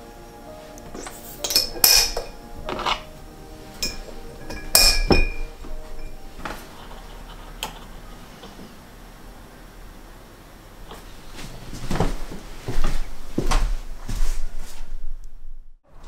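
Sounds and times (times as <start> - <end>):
glass bottles clinking: 1.0 - 3.1, 3.8 - 6.3.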